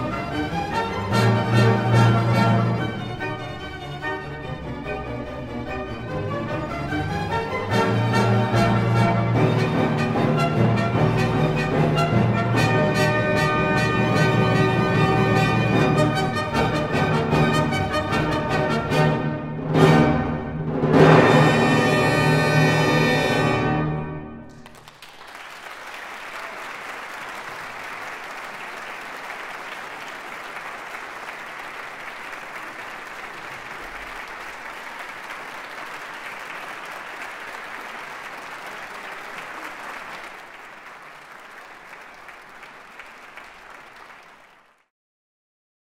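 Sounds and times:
audience applause: 0:24.5 - 0:44.9.

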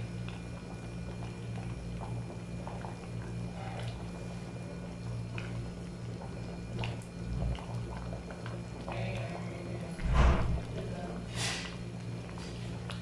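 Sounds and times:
sauce bubbles popping: 0:00.2 - 0:09.0
low hum: 0:09.5 - 0:12.4.

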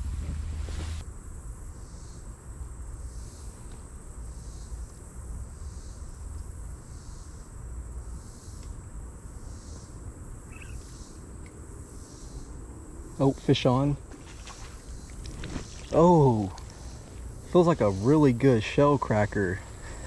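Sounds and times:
low rumble: 0:00.0 - 0:01.0
insects trilling: 0:01.0 - 0:20.0.

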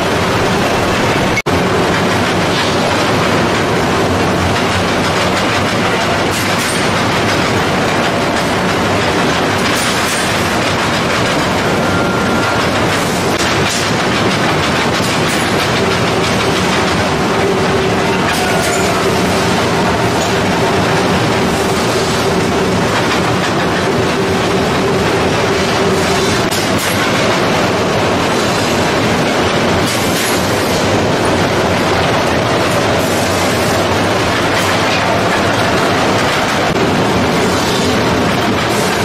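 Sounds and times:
steel bar clattering through rollers: 0:00.0 - 0:39.0
steady machine tone: 0:11.0 - 0:14.9.

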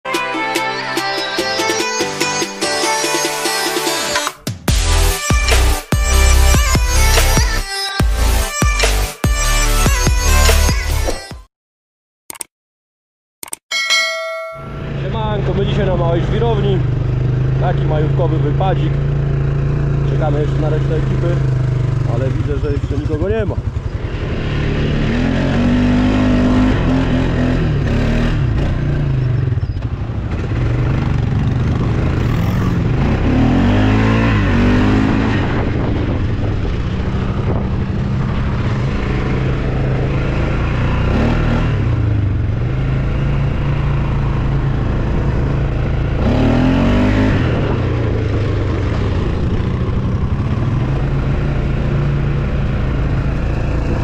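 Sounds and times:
quad bike engine revving: 0:14.8 - 0:54.0.

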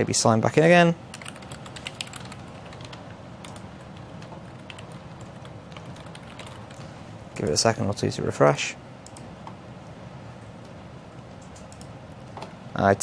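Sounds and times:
low steady hum: 0:00.0 - 0:13.0
keyboard keystrokes: 0:01.1 - 0:03.6.

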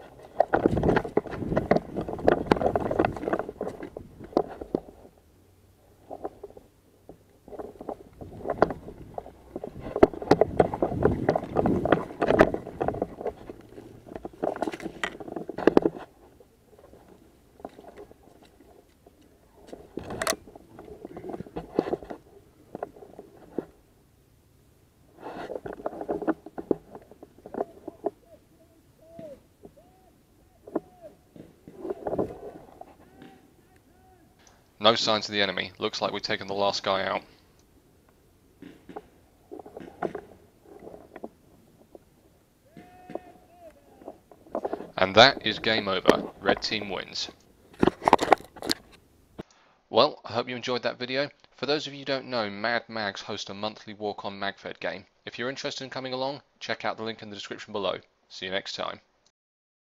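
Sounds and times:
scraping and rustling against clothing: 0:00.0 - 0:05.2, 0:05.8 - 0:23.9, 0:25.1 - 0:37.6, 0:38.6 - 0:49.5.

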